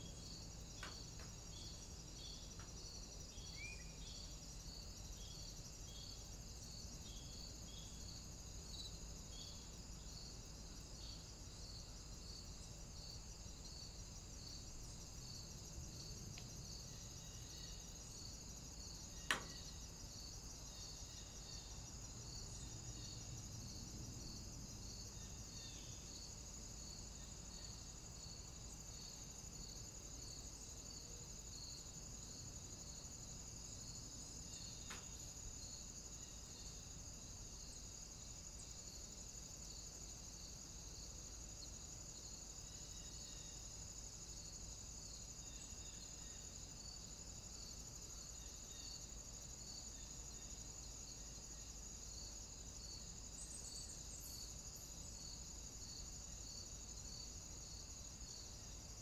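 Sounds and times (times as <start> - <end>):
low even hiss: 0.0 - 23.6.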